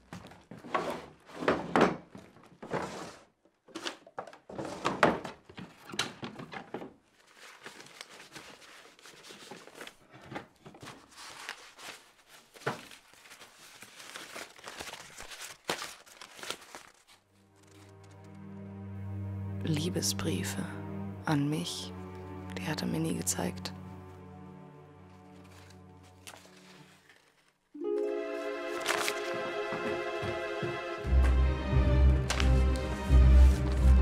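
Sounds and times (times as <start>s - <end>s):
paper rustling: 2.6s - 18.3s, 25.1s - 30.7s, 32.2s - 34.0s.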